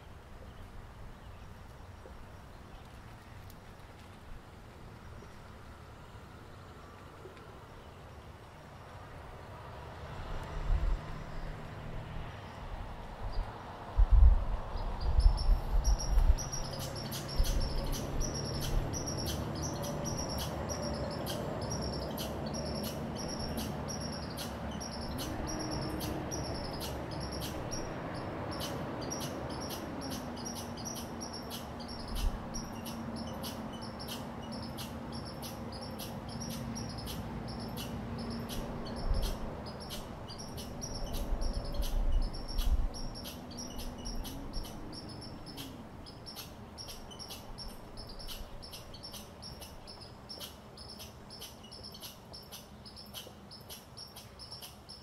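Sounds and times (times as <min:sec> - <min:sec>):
chipmunk chip calls: 0:14.8 - 0:55.0.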